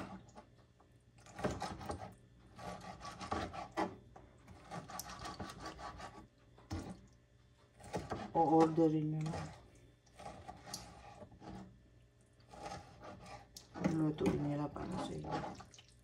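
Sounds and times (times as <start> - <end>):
knife sawing through meat: 1.5 - 4.0, 4.6 - 6.2, 10.2 - 11.7, 12.5 - 13.6.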